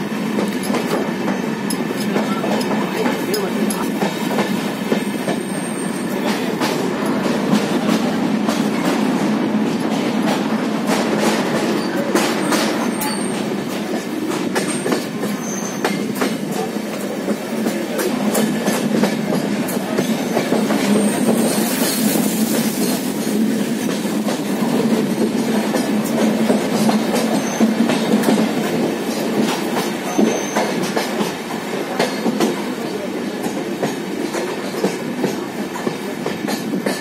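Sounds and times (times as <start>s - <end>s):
train coach rumbling on rails: 0.0s - 37.0s.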